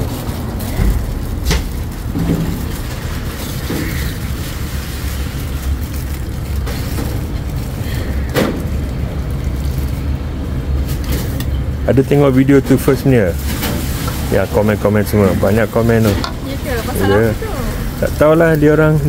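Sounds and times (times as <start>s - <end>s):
low rumble: 0.0s - 10.9s.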